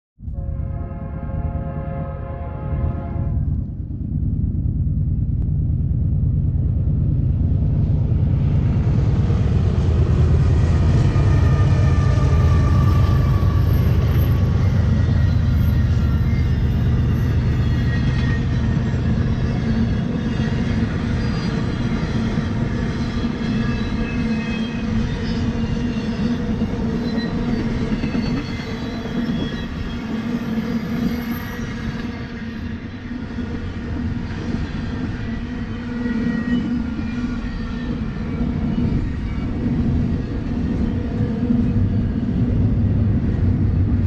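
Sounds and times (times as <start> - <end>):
diesel locomotive rumbling past: 0.2 - 44.0
train wheels clattering on rails: 9.5 - 32.7
faint high wheel squealing: 11.5 - 21.8.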